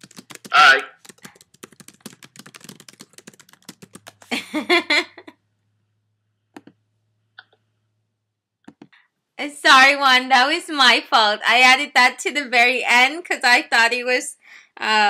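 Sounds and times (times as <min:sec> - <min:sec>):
typing on a keyboard: 0:00.0 - 0:04.5
person speaking: 0:00.0 - 0:05.3.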